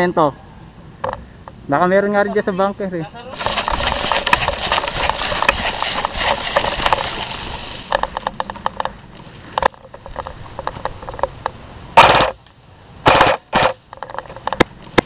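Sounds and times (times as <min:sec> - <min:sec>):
scraping and rattling: 0:03.3 - 0:12.4, 0:13.1 - 0:15.0.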